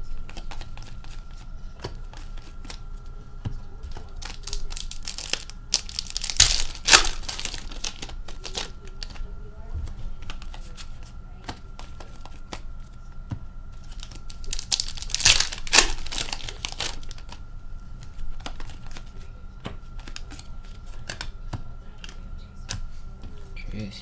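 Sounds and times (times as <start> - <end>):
cards clicking: 0.3 - 2.8, 3.8 - 9.3, 13.8 - 17.4, 18.3 - 22.9
wrapper crinkling and tearing: 4.0 - 9.2, 13.8 - 17.4.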